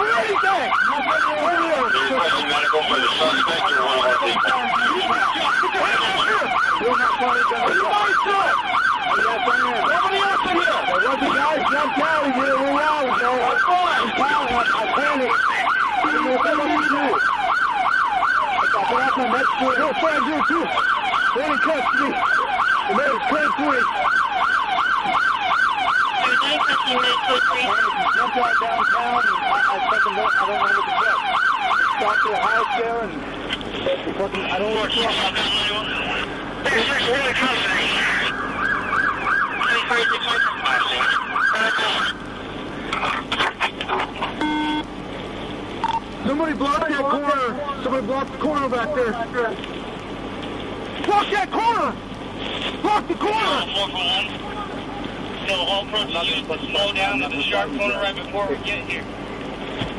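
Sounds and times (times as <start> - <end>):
police siren yelping: 0.0 - 33.2, 34.3 - 42.4, 43.2 - 44.9.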